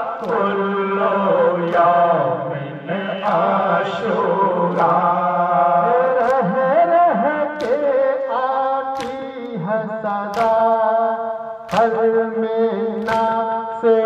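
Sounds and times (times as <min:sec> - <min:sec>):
men chanting together: 0:00.0 - 0:11.1
chest-beating slaps: 0:04.7 - 0:05.0, 0:06.1 - 0:06.6, 0:07.6 - 0:08.1, 0:08.9 - 0:09.6, 0:10.3 - 0:10.8, 0:11.6 - 0:12.0, 0:13.0 - 0:13.4.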